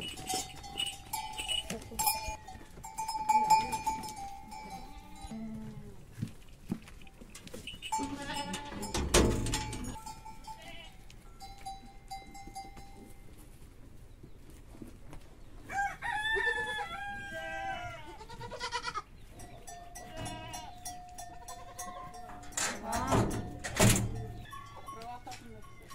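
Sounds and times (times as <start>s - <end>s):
goats bleating: 0.2s - 6.0s, 7.9s - 9.0s, 10.4s - 11.0s, 16.5s - 19.1s, 19.9s - 23.5s.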